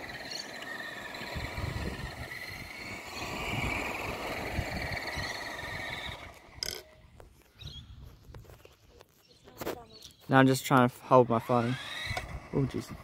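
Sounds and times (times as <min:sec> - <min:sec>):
wind rumbling on microphone: 0:01.2 - 0:09.0.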